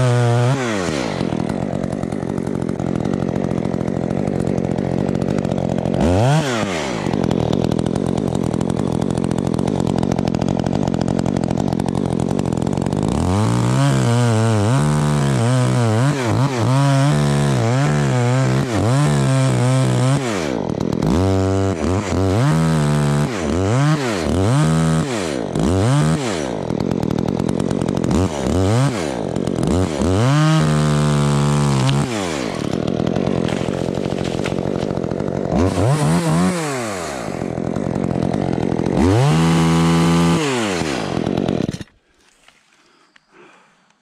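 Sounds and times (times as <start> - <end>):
chainsaw revving and cutting wood: 0.0 - 44.0.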